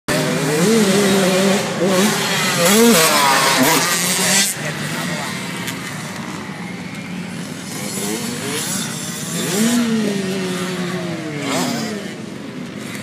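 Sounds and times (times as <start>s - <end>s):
dirt bike revving hard: 0.1s - 5.5s, 7.7s - 12.3s
dirt bike engines: 0.1s - 13.0s.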